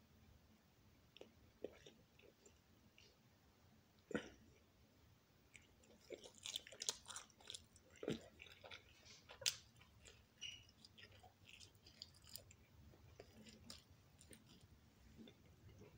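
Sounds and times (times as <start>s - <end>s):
person chewing pizza: 1.1s - 3.1s, 5.5s - 15.9s.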